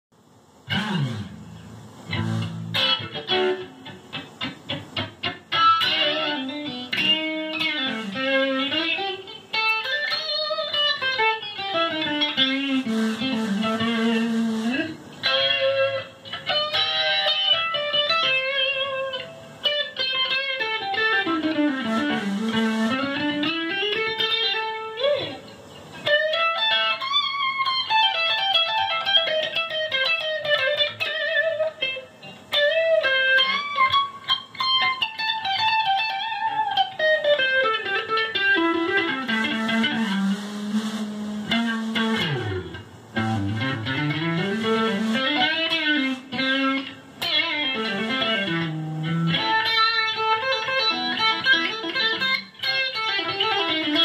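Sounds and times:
electric guitar solo: 0.6s - 54.0s.

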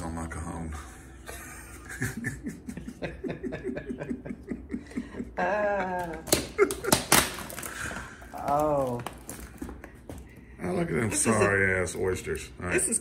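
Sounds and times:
person laughing: 1.2s - 7.8s.

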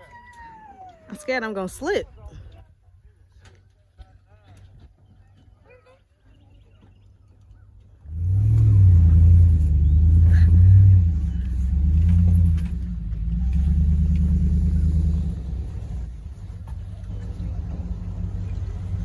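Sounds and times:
vehicle engine revving: 8.0s - 19.0s.

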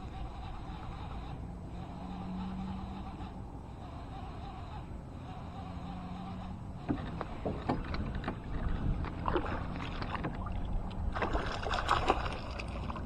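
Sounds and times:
fish splashing water: 7.6s - 13.0s.

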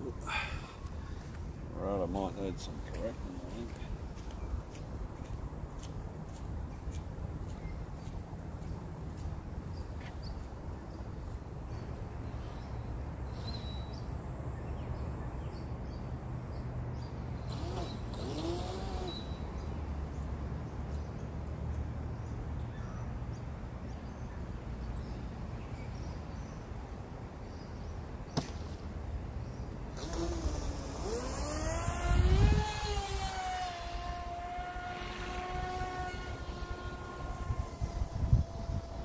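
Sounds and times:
model boat motor whine: 17.4s - 19.7s, 30.0s - 39.0s.

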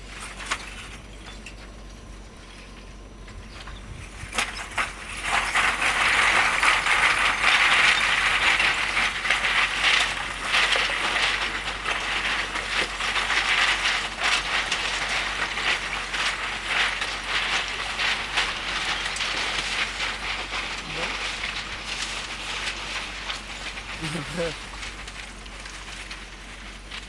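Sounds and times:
rocks crunching under tyres: 0.0s - 27.0s.

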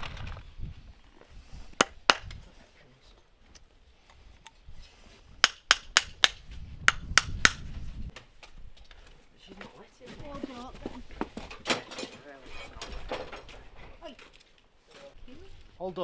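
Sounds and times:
hammer tapping horseshoe nails: 1.8s - 2.3s, 5.4s - 7.6s.

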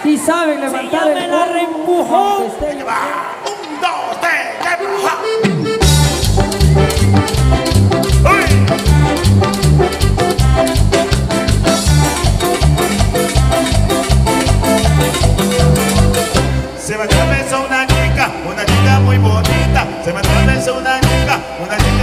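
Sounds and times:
keyboard: 3.2s - 22.0s
congas: 3.3s - 22.0s
saxophone: 5.0s - 22.0s
electric guitars: 5.2s - 22.0s
bass: 5.7s - 22.0s.

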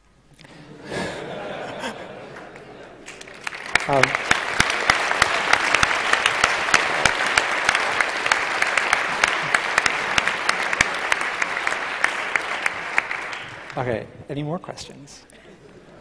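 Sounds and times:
audience applauding: 0.4s - 14.0s.

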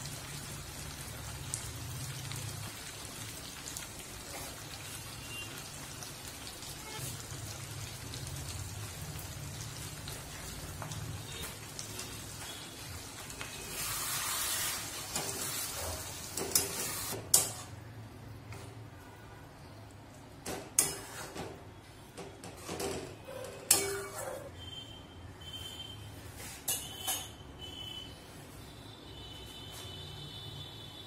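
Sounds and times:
low sizzle: 0.0s - 18.4s.

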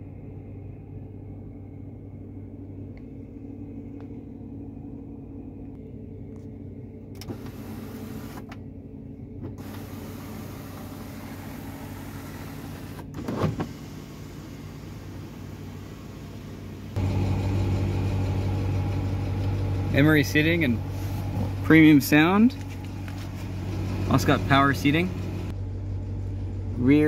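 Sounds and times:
car engine idling: 0.2s - 27.0s
power sunroof motoring open: 6.3s - 22.0s.

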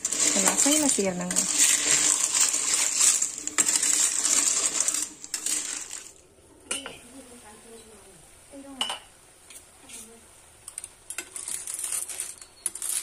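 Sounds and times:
snail shells clattering in wok: 0.0s - 6.2s, 10.7s - 13.0s.

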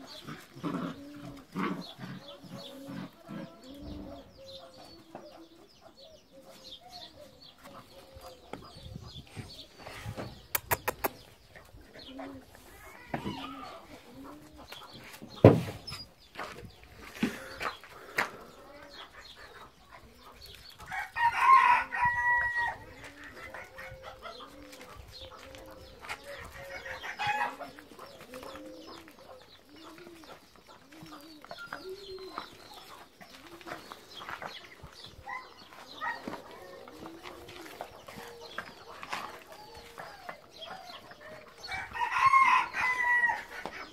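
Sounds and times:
light scuffing and clicking: 27.7s - 40.7s.

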